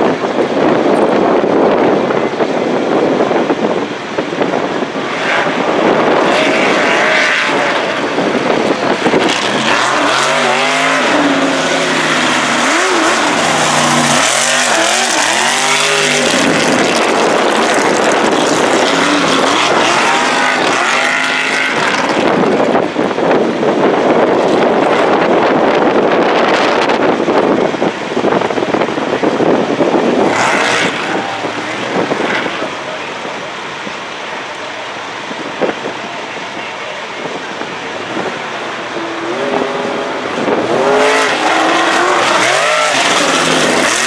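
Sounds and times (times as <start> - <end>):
truck engine revving: 0.0 - 44.0.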